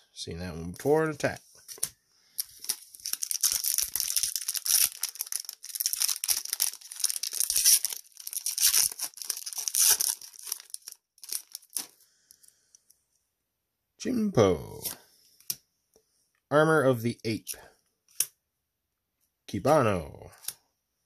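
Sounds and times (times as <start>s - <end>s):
foil wrapper tearing and crinkling: 2.4s - 12.0s.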